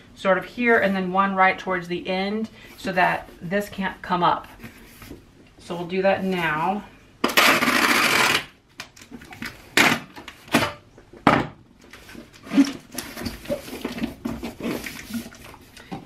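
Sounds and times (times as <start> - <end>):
packing tape screeching rip: 7.2 - 8.6.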